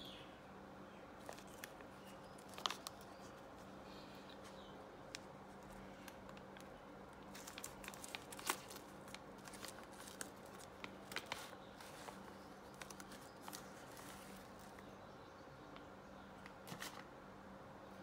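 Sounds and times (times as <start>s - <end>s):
plastic bag crinkling: 1.2s - 3.7s, 4.4s - 14.9s.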